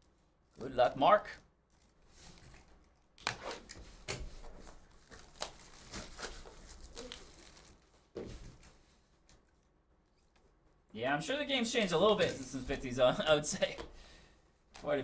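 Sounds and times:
plastic wrap tearing and crinkling: 1.7s - 8.7s.

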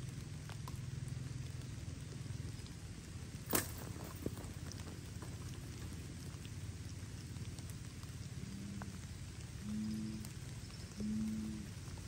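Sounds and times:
heavy rain on foliage: 0.0s - 12.0s.

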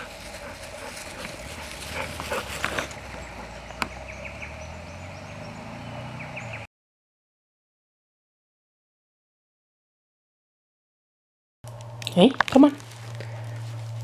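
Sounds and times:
dogs moving on grass: 0.0s - 3.8s, 11.7s - 14.0s
low steady rumble: 0.0s - 5.3s, 11.7s - 14.0s.

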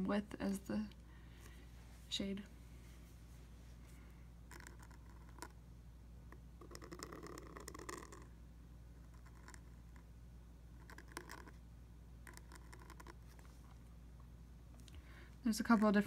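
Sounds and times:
steady low hum: 0.0s - 16.0s
pen nib scratching paper: 4.5s - 5.6s, 6.6s - 8.3s, 9.0s - 10.0s, 10.8s - 11.6s, 12.2s - 13.5s, 15.6s - 16.0s.

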